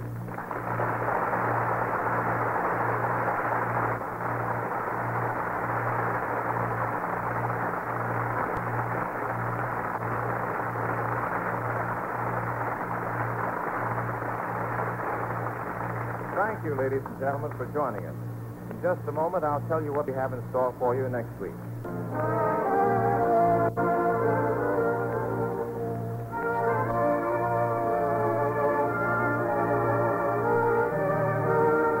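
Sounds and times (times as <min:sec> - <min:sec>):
audience applauding: 0:00.0 - 0:18.1
radio recording hiss: 0:00.0 - 0:22.4.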